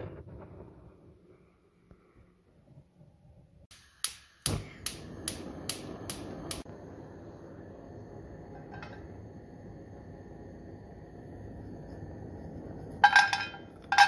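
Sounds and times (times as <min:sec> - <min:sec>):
gas igniter clicking: 0:03.7 - 0:06.7
gas flame hissing: 0:03.7 - 0:14.0
frying pan set on grate: 0:08.5 - 0:09.0, 0:13.0 - 0:14.0.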